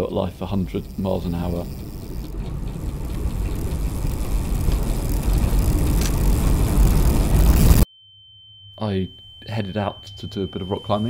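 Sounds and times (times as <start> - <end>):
wind rushing: 0.8 - 7.8.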